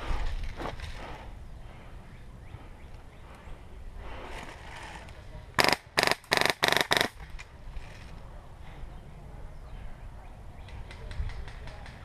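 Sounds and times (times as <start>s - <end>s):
airsoft gun full-auto bursts: 5.6s - 7.2s.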